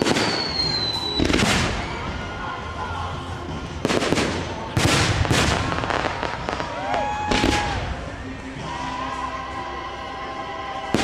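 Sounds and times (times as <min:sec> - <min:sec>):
firework whistle: 0:00.0 - 0:02.3
fireworks bursting with bangs: 0:00.0 - 0:02.4, 0:03.5 - 0:08.2.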